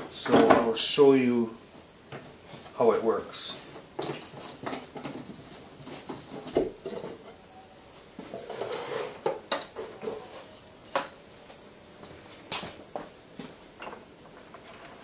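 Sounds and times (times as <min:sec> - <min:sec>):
wood scraping: 0:08.2 - 0:10.6, 0:14.2 - 0:15.0.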